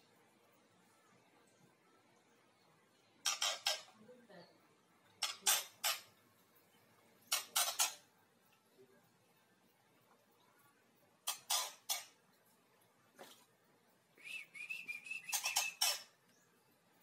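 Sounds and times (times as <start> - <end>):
bird giving harsh rasping calls: 3.2 - 3.9, 5.2 - 6.1, 7.3 - 8.1, 11.2 - 12.2, 15.2 - 16.1.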